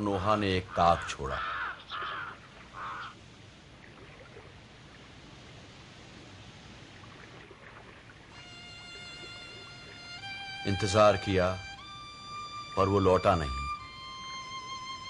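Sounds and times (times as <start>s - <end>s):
crow cawing: 0.6s - 3.2s
sea water rushing: 0.7s - 12.8s.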